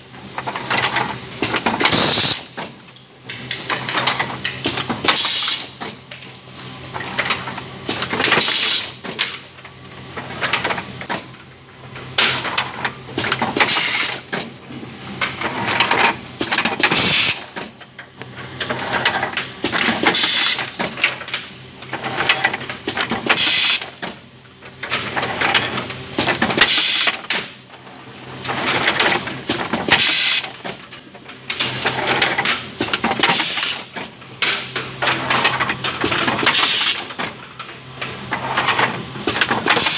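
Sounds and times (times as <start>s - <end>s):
machine hissing: 1.4s - 2.6s, 16.4s - 17.6s, 19.6s - 20.8s, 23.2s - 23.9s, 29.5s - 30.6s, 36.4s - 37.1s.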